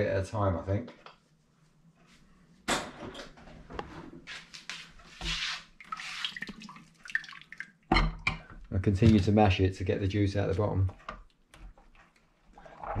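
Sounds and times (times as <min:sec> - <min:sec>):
small clicks and scrapes: 0:10.8 - 0:12.7.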